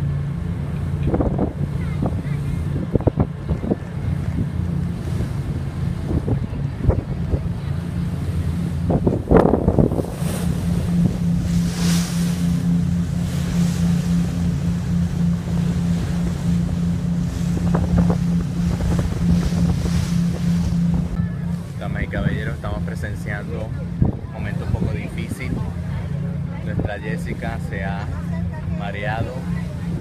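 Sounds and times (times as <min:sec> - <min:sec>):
ferry engines droning: 0:00.0 - 0:30.0
water rushing along hull: 0:00.0 - 0:30.0
wind buffeting microphone: 0:00.0 - 0:30.0.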